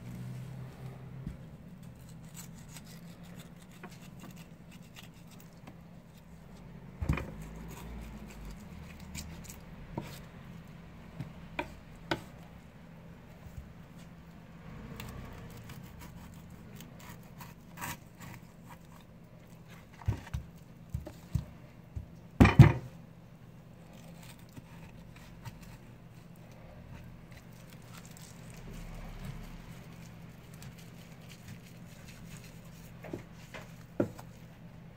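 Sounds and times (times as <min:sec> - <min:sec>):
knife cutting and scraping fish: 0:01.7 - 0:10.4, 0:14.8 - 0:22.1, 0:23.8 - 0:34.7
knocks on cutting board: 0:22.4 - 0:22.9.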